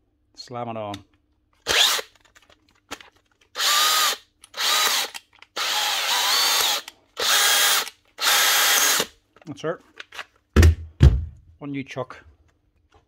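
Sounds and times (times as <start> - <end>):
cordless drill motor whining: 3.6 - 9.1.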